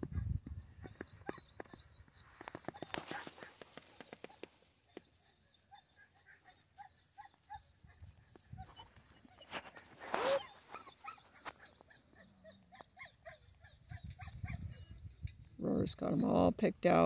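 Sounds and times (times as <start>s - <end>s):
dog crying: 5.7s - 15.0s
dog whining: 5.7s - 15.0s.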